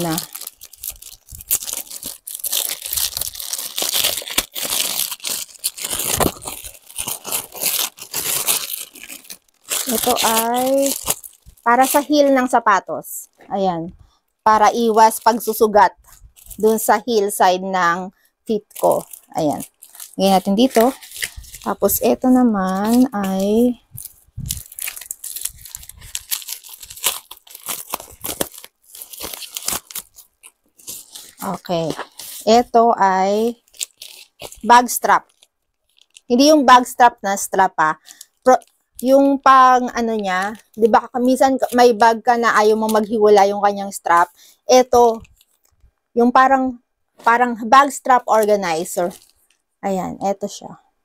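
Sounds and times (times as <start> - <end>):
plastic packet tearing and crinkling: 0.0 - 12.5, 14.8 - 16.9, 18.7 - 32.7, 33.3 - 36.5, 38.1 - 44.2, 44.8 - 45.9, 48.3 - 49.6.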